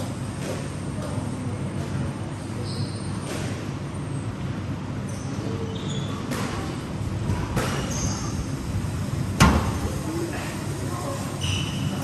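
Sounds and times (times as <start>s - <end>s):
squash ball hitting rackets and walls: 0.0s - 2.1s, 2.8s - 3.8s, 6.2s - 8.3s, 9.4s - 9.8s
steady low hum: 0.0s - 12.0s.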